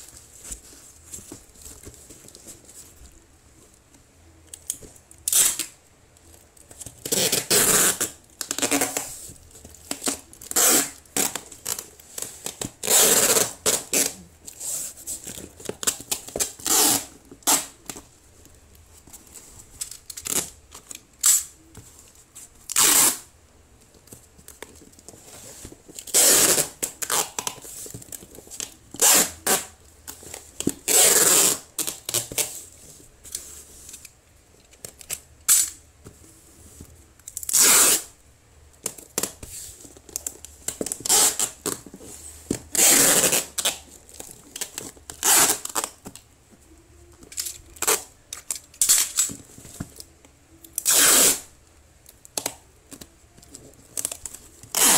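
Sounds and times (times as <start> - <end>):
cardboard box being handled: 0.0 - 3.2
packing tape ripping off roll: 4.6 - 5.8, 6.9 - 9.2, 9.8 - 18.0, 19.8 - 21.7, 22.6 - 23.3, 25.9 - 32.6, 34.9 - 35.8, 37.3 - 38.2, 38.8 - 41.8, 42.5 - 46.2, 47.3 - 49.4, 50.7 - 51.5, 53.9 - 54.9.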